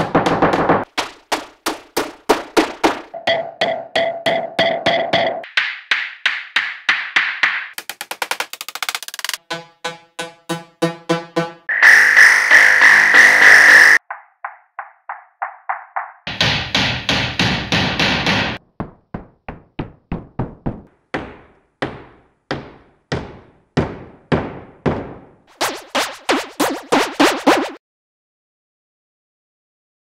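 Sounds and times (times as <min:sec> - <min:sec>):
claw hammer strikes: 0:00.0 - 0:07.9, 0:12.6 - 0:19.3, 0:20.8 - 0:27.8.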